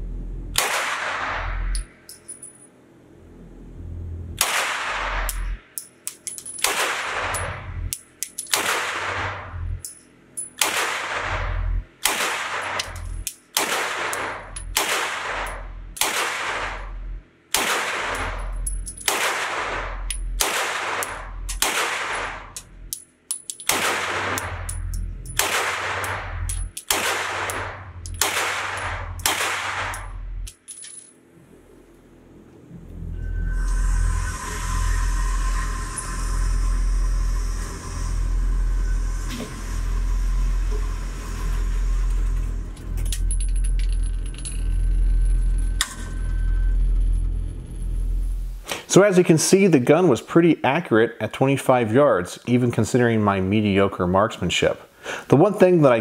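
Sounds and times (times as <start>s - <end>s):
gunshots echoing indoors: 0.6s - 1.6s, 4.4s - 5.5s, 6.6s - 7.6s, 8.5s - 9.4s, 10.6s - 16.9s, 17.5s - 18.4s, 19.0s - 22.6s, 23.7s - 24.6s, 25.4s - 30.2s.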